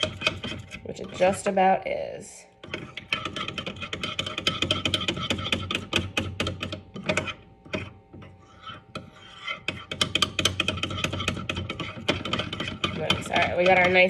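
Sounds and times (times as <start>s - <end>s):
spoon scraping glass bowl: 0.0s - 1.7s, 2.6s - 14.0s.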